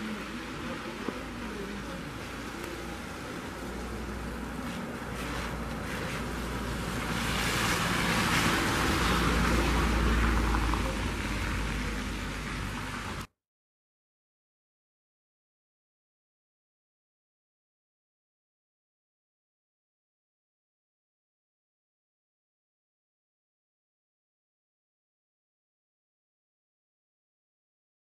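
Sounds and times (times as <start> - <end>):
car driving past: 0.0 - 13.3
tyres on wet snow: 0.0 - 13.3.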